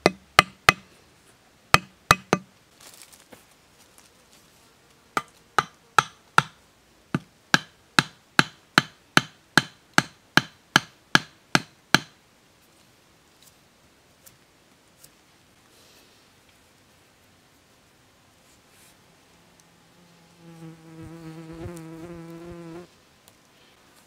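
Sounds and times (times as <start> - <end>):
machete chopping wooden stick: 0.0 - 0.8, 1.8 - 2.5.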